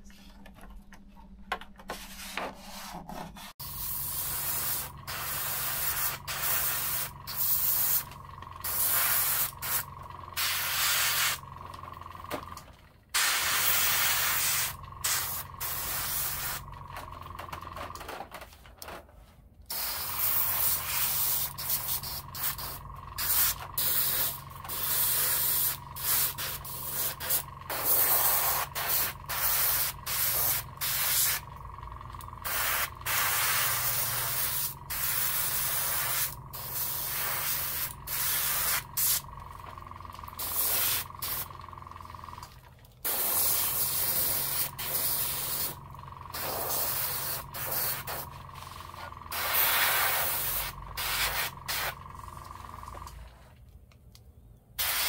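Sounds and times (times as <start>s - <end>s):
steady low hum: 0.0s - 53.6s
airbrush spraying hiss: 3.6s - 8.0s, 8.6s - 9.8s, 10.4s - 11.4s, 13.2s - 16.6s, 19.7s - 31.4s, 32.4s - 39.2s, 40.4s - 41.5s, 43.1s - 45.8s, 46.4s - 48.2s, 49.3s - 52.0s, 54.8s - 55.0s.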